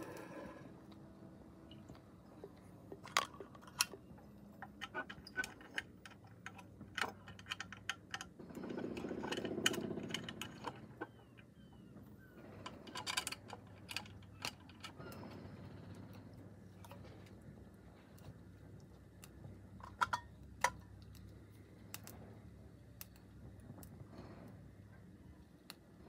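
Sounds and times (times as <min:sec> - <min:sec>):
metallic clicks of toy engine: 0:03.0 - 0:11.6, 0:12.5 - 0:17.3.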